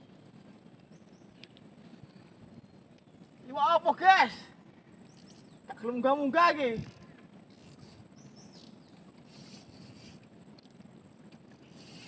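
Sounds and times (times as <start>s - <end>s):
soft hiss: 0.0s - 12.0s.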